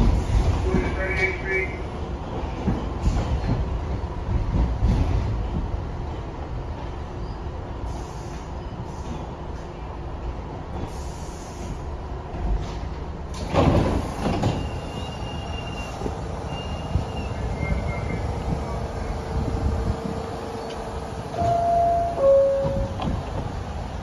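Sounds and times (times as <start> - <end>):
steady tone from train: 0.0 - 2.1, 14.4 - 24.0
train rumble: 0.0 - 24.0
sliding doors shutting: 12.6 - 16.1.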